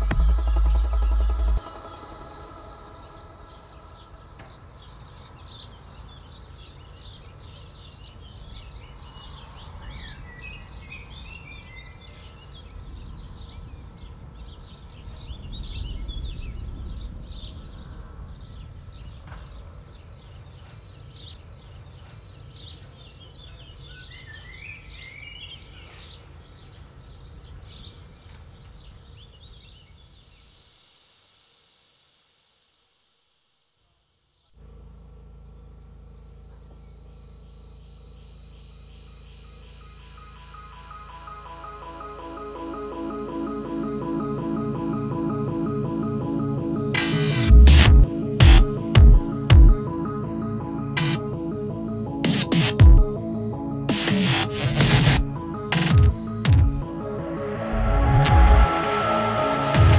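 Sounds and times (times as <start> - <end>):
low rumble: 0.0 - 5.1, 56.0 - 59.9
small birds chirping: 3.0 - 30.7, 34.3 - 57.6.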